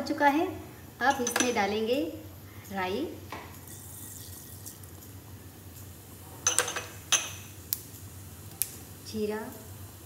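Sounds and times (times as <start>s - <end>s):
seeds sizzling in hot oil: 3.5s - 10.0s.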